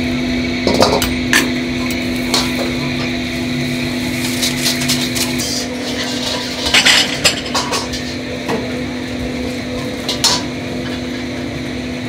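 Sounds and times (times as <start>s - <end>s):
steady mechanical hum: 0.0s - 12.0s
knocks of kitchen utensils: 9.8s - 11.0s.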